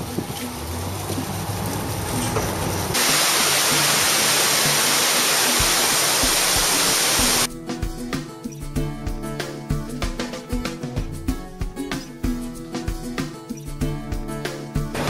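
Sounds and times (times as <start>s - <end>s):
waterfall roaring: 0.0s - 7.5s.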